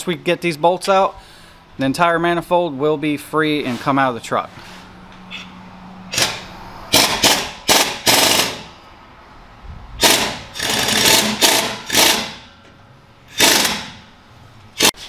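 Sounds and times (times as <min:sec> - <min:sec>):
impact wrench rattling: 0:06.1 - 0:08.8, 0:10.0 - 0:12.5, 0:13.3 - 0:14.1.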